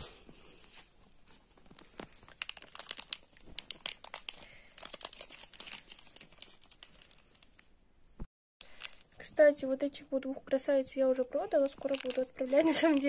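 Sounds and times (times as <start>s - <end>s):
plastic bag crinkling: 1.3s - 7.7s, 8.6s - 9.4s, 11.3s - 13.0s.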